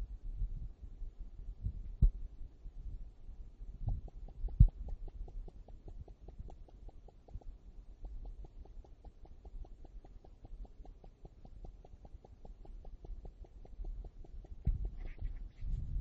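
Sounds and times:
low hum: 0:00.0 - 0:16.0
faint even ticking: 0:03.8 - 0:15.2.

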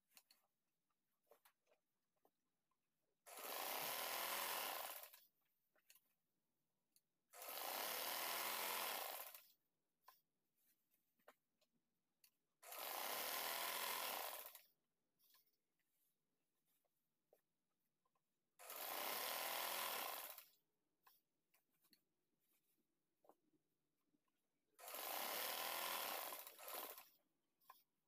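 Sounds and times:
sewing machine stitching: 0:03.2 - 0:05.3, 0:07.3 - 0:09.6, 0:12.6 - 0:15.4, 0:18.6 - 0:21.2, 0:24.7 - 0:27.9.

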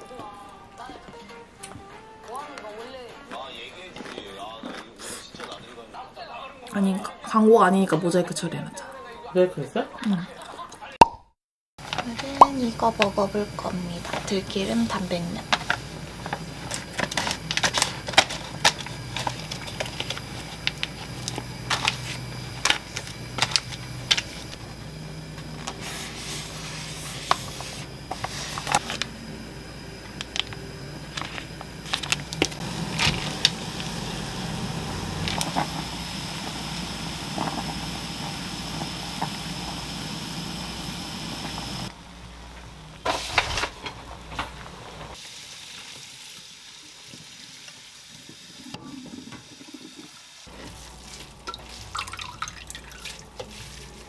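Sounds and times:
noodles in boiling water: 0:11.8 - 0:54.0
plastic packaging crinkling: 0:14.0 - 0:24.6, 0:30.2 - 0:34.0.

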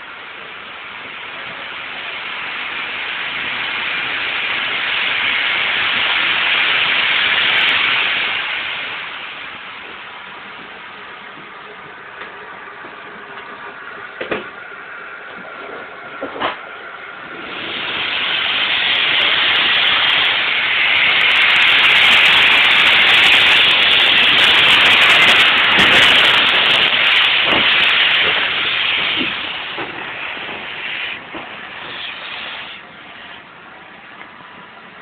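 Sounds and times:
steam locomotive hissing: 0:00.0 - 0:35.0.

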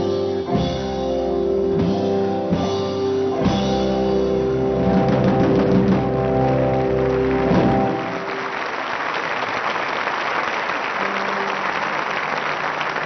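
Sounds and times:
audience applause: 0:04.9 - 0:13.0.

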